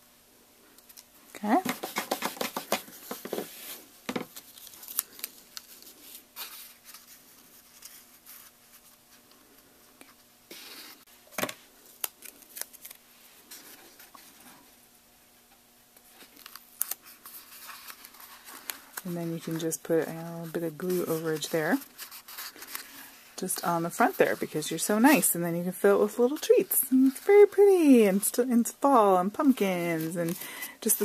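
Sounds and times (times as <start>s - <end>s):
paper handling: 1.6s - 9.4s, 11.4s - 14.5s, 16.0s - 23.1s.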